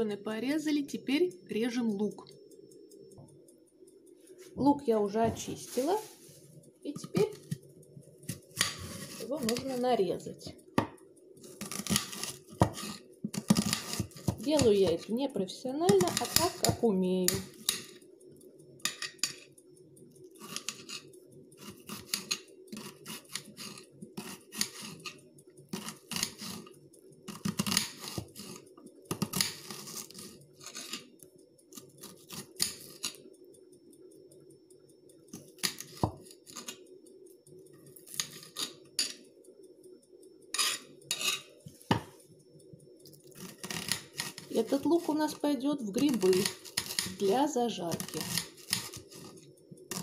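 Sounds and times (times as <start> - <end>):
steady low hum: 0.0 - 50.0
knife tapping cutting board: 41.9 - 42.1.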